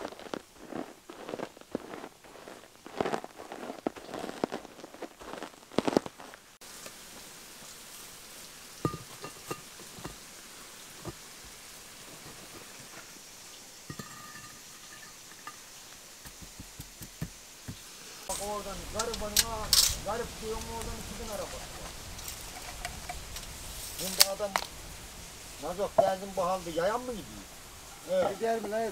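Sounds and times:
boots crunching on gravel: 0:00.0 - 0:06.6
steady hiss: 0:00.0 - 0:28.9
brick slabs clinking and knocking: 0:13.9 - 0:15.7, 0:28.0 - 0:28.9.

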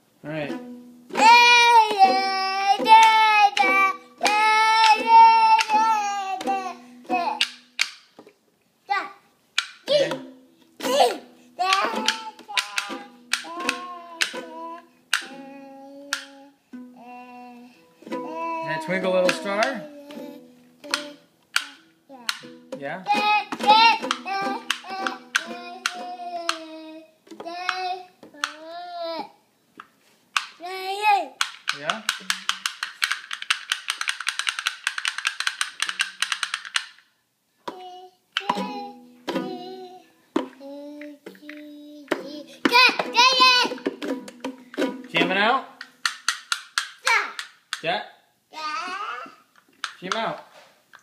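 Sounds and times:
ukulele strummed: 0:00.3 - 0:08.0, 0:09.9 - 0:28.6, 0:37.7 - 0:46.6
toddler singing: 0:01.1 - 0:07.7, 0:09.9 - 0:29.4, 0:30.6 - 0:31.4, 0:37.6 - 0:44.0, 0:47.0 - 0:47.4, 0:48.5 - 0:49.5.

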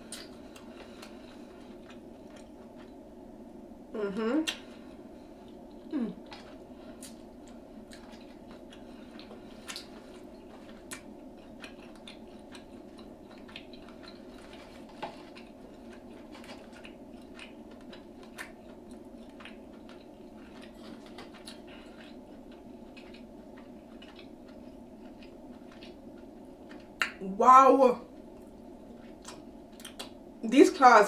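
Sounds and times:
crunchy chewing: 0:00.0 - 0:03.0, 0:04.5 - 0:27.2, 0:28.1 - 0:30.2
steady low hum: 0:00.0 - 0:31.0.

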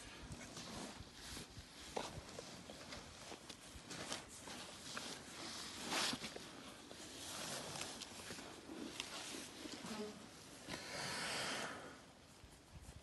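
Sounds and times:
elephant breathy rush: 0:10.6 - 0:12.3.

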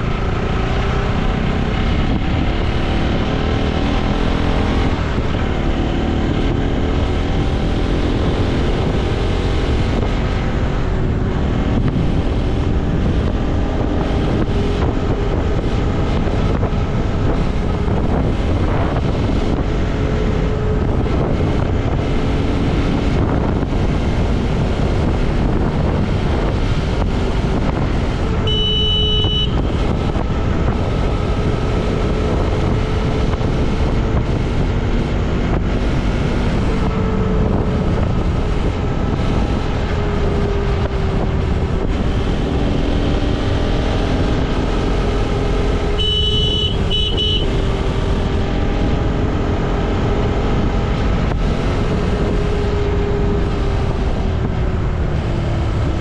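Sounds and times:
motorcycle engine running: 0:00.0 - 0:56.0
road noise: 0:00.0 - 0:56.0
vehicle horn beeping: 0:28.4 - 0:29.7, 0:45.9 - 0:47.6.

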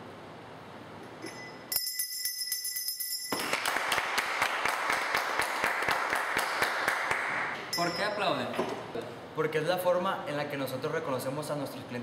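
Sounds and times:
bell ringing: 0:01.2 - 0:03.6, 0:07.7 - 0:08.3
crowd applause: 0:03.5 - 0:07.6.

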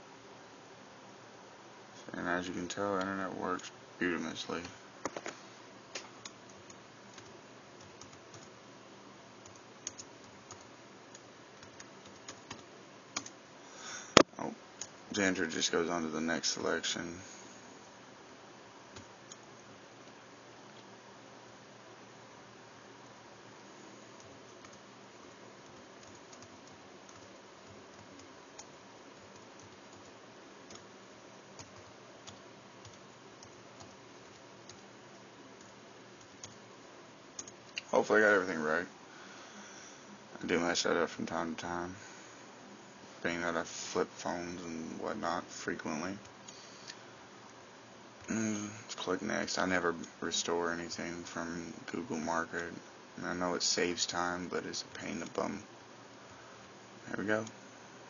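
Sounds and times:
background hiss: 0:00.0 - 0:58.0
laptop keyboard typing: 0:06.2 - 0:08.5, 0:09.4 - 0:13.4, 0:24.2 - 0:24.8, 0:25.6 - 0:30.9, 0:31.6 - 0:36.6, 0:37.4 - 0:37.6.

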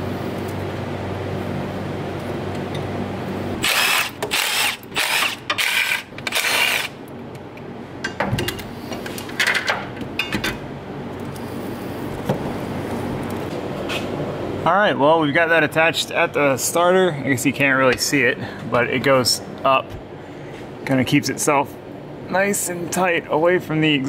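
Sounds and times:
steady low hum: 0:00.0 - 0:24.0
power tool bursts on fastener: 0:03.6 - 0:06.9.

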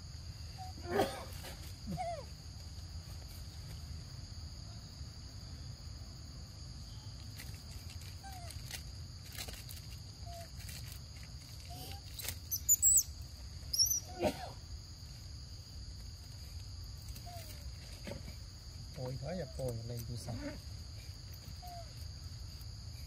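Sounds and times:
high insect drone: 0:00.0 - 0:23.0
high bird chirps: 0:12.5 - 0:14.1.

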